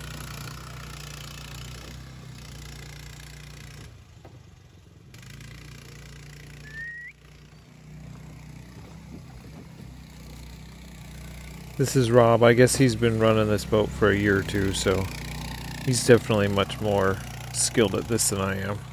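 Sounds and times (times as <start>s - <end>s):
boat motor droning: 5.0s - 18.9s
short rising chirp: 6.6s - 7.6s.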